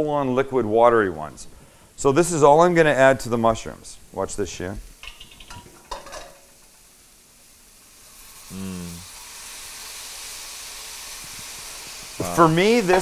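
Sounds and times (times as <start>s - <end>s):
sauce sizzling in a wok: 1.7s - 13.0s.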